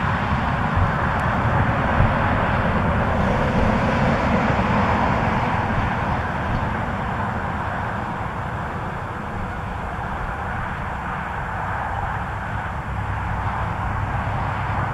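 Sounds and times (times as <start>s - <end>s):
highway traffic rushing: 0.0s - 14.9s.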